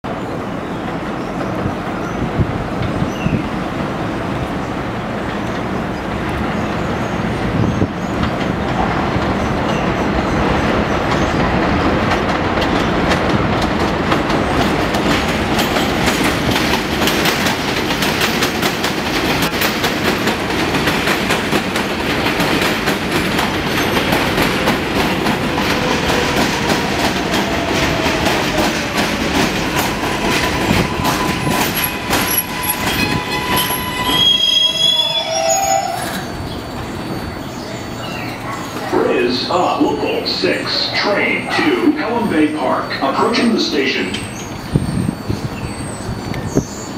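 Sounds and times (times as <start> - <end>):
subway train rumble: 0.0 - 46.9
wheels clattering over rail joints: 7.6 - 34.2
thin train whine: 14.8 - 46.9.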